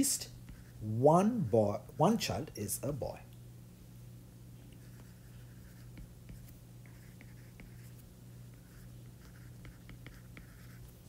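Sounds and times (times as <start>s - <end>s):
stylus writing on glass screen: 0.0s - 2.2s, 4.8s - 11.0s
steady low hum: 0.0s - 11.0s.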